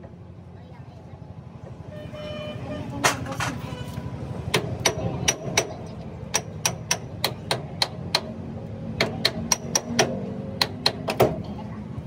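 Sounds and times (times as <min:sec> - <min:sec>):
hammer striking steel: 0:04.5 - 0:08.4, 0:09.0 - 0:11.4.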